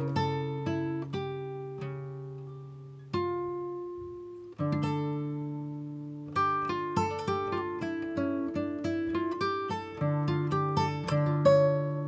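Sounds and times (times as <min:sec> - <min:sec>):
acoustic guitar strummed chords: 0:00.0 - 0:12.0.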